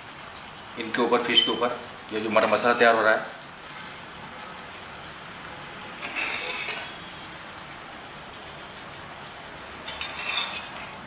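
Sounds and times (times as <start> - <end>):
fish sizzling in oil: 0.0 - 11.0
steel spoon scraping pan: 6.0 - 7.0, 9.9 - 11.0.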